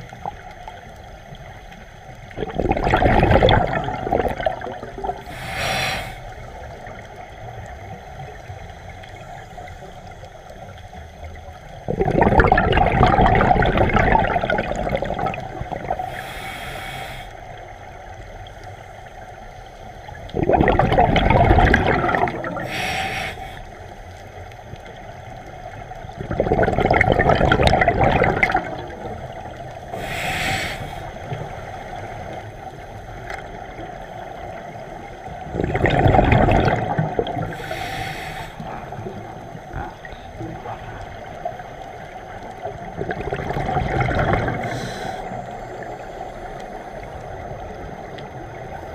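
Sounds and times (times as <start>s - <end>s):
exhaled bubbles gurgling underwater: 0.0s - 48.9s
regulator hissing inhalations: 5.2s - 6.7s, 16.0s - 17.6s, 22.6s - 24.0s, 29.8s - 32.0s, 37.4s - 39.0s, 44.6s - 45.8s.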